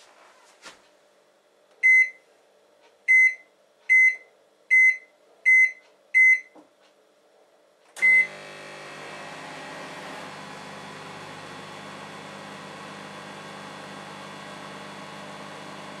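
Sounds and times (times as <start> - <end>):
microwave keypad beeps: 1.8 - 2.2, 3.1 - 6.6, 8.0 - 8.4
microwave oven humming: 8.0 - 16.0.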